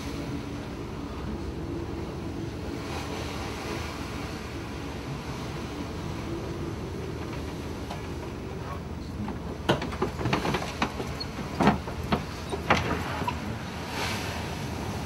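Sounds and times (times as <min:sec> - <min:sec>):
wind and heavy seas rumbling: 0:00.0 - 0:15.0
sharp knocks and rattles: 0:09.2 - 0:13.4.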